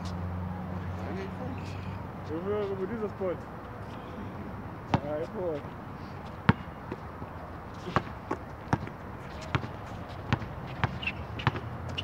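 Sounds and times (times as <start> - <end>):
basketball bouncing on hard court: 4.9 - 5.1, 6.5 - 6.7, 7.9 - 12.0.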